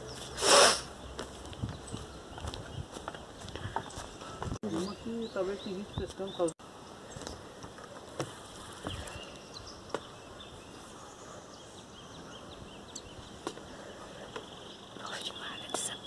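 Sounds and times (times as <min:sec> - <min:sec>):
low steady hiss: 0:06.4 - 0:16.0.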